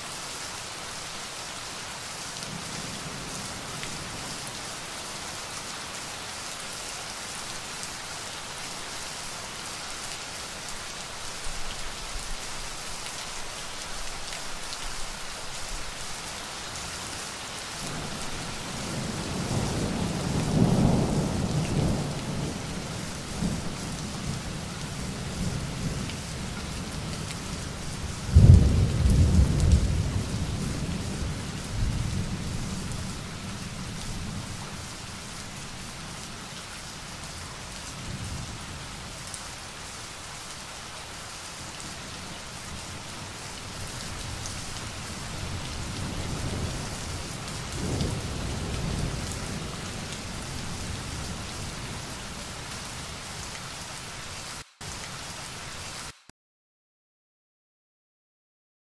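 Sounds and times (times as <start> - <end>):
steady rain: 0.0 - 56.3
thunder rumbling: 28.1 - 32.9, 44.2 - 51.1.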